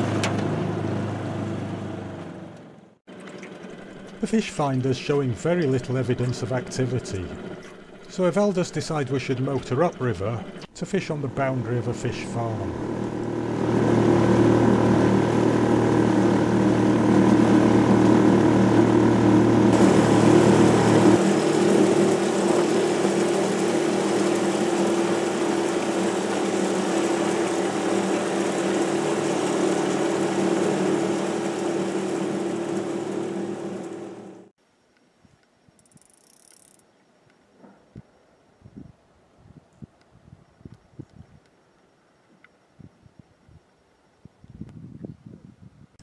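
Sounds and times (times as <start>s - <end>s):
outboard motor running: 0.0s - 34.5s
water rushing past: 19.7s - 34.4s.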